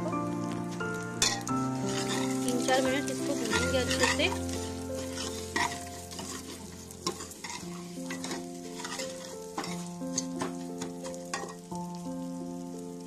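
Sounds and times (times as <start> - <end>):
soft background music: 0.0 - 13.0
metal spoon scraping pot: 1.2 - 11.6.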